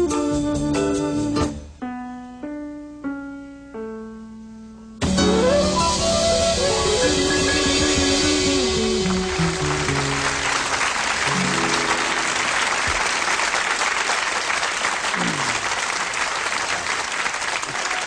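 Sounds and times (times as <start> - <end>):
low notes stepping downward: 5.0 - 13.1
audience applause: 8.5 - 18.0.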